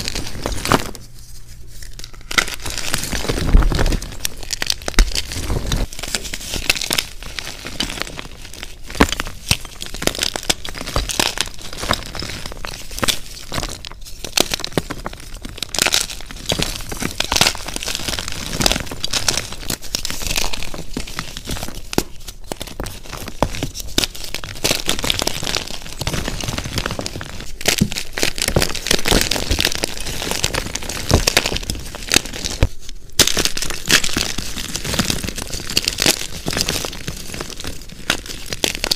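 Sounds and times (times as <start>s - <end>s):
chalk blocks crunching by hand: 1.8s - 38.9s.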